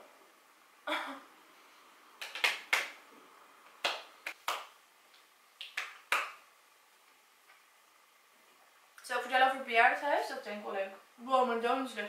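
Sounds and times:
hands clapping lightly: 0:02.2 - 0:03.0, 0:03.7 - 0:06.4.

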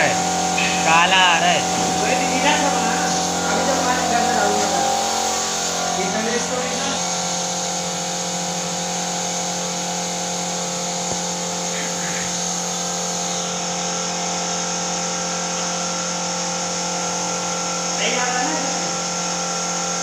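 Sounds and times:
continuous air hiss: 0:00.0 - 0:14.4
air compressor motor hum: 0:00.0 - 0:20.0.

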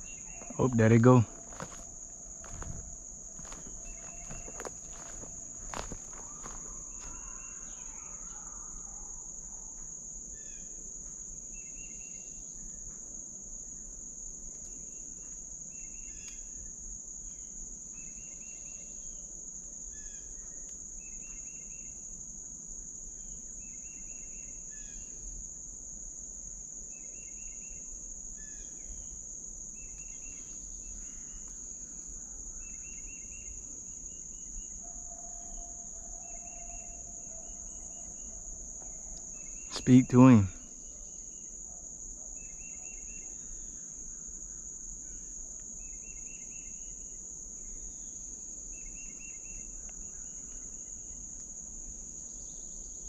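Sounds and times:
insect calls of rapid pulses: 0:00.0 - 0:53.0
insects buzzing: 0:00.0 - 0:53.0.

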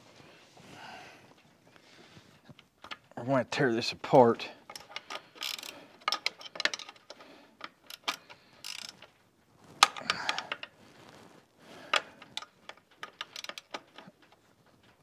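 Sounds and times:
clicks and knocks of handling: 0:04.6 - 0:11.2, 0:11.8 - 0:15.0.

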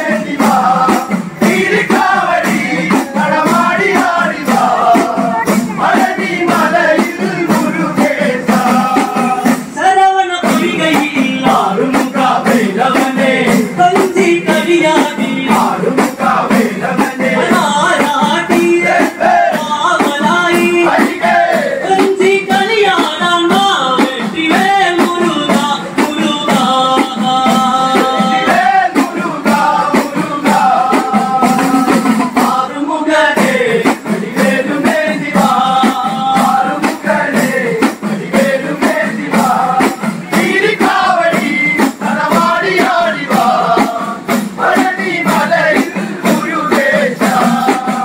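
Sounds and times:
hourglass drums beating: 0:00.0 - 0:09.8, 0:33.4 - 0:48.0
men singing in unison: 0:00.0 - 0:48.0.

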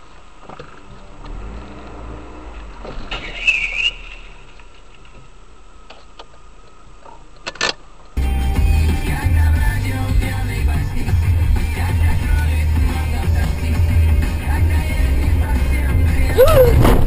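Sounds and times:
car humming: 0:00.0 - 0:17.0
high squeal: 0:03.1 - 0:04.6, 0:16.3 - 0:17.0.

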